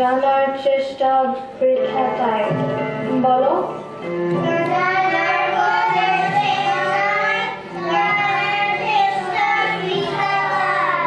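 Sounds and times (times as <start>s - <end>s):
children singing a chant: 4.4s - 11.0s.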